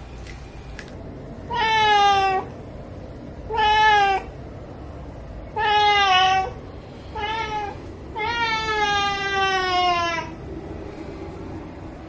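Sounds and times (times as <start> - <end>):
cat meowing: 1.5 - 2.5, 3.5 - 4.3, 5.5 - 10.4.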